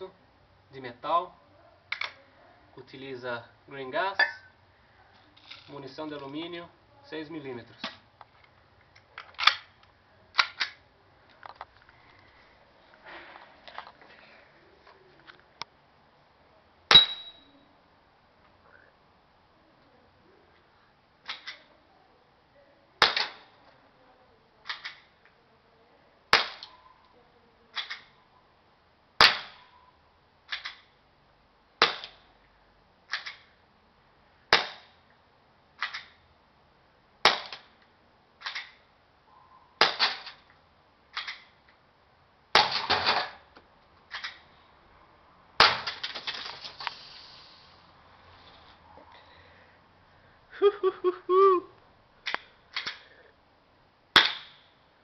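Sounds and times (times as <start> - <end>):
airsoft pistol shots: 23.0 - 23.5, 26.3 - 26.7, 29.2 - 29.6, 31.8 - 32.2, 34.5 - 34.9, 37.2 - 37.7, 39.8 - 40.3, 45.6 - 46.0, 54.2 - 54.6.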